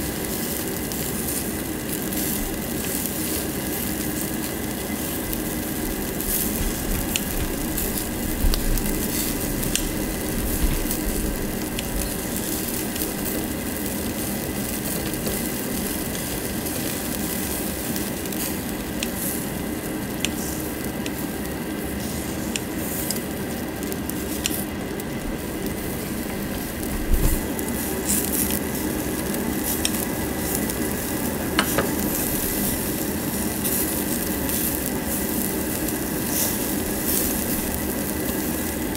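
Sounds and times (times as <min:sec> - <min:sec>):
meat sizzling on a grill: 0:00.0 - 0:38.9.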